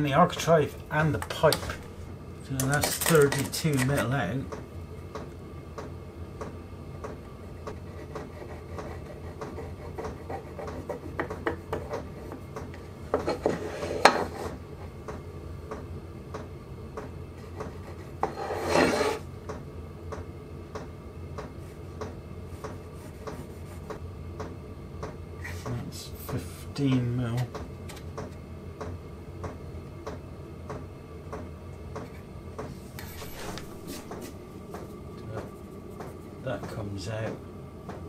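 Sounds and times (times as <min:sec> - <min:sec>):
low steady hum: 0:00.0 - 0:38.0
pencil scratching on wood: 0:07.6 - 0:12.5, 0:13.2 - 0:14.6, 0:17.4 - 0:19.2, 0:22.9 - 0:24.0
scraping strokes: 0:13.2 - 0:14.6, 0:17.7 - 0:19.2.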